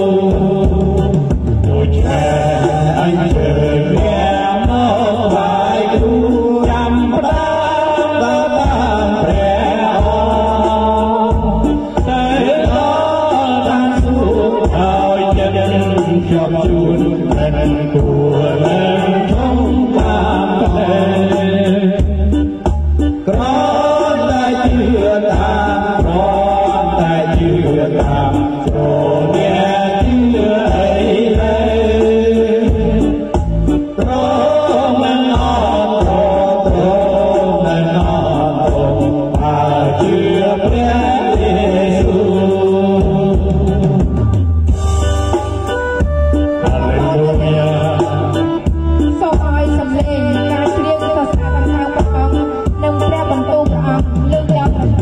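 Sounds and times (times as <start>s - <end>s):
heavy bass beat: 0.0s - 55.0s.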